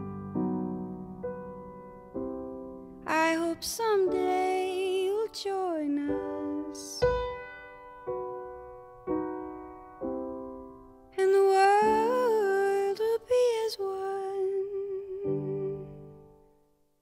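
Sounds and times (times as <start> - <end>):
piano chords: 0.0 - 16.7
woman singing: 3.0 - 7.2, 11.2 - 16.1.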